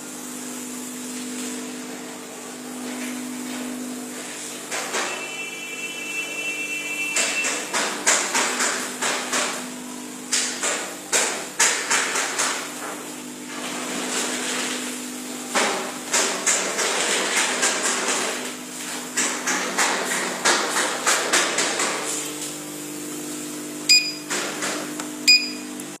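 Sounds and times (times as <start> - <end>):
electrical hum of machine: 0.0 - 26.0
short beeps: 23.9 - 24.3, 25.3 - 25.7.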